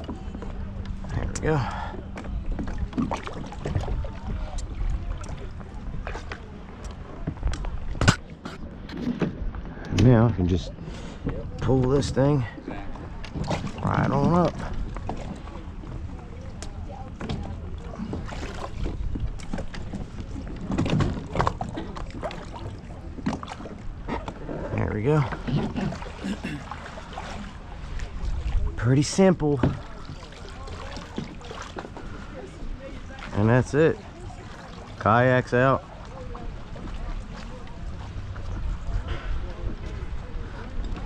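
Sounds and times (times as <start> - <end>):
water sloshing and splashing: 0.0 - 41.0
hull knocks and rattles: 18.8 - 22.4
knocks and clunks on plastic hull: 29.6 - 30.0.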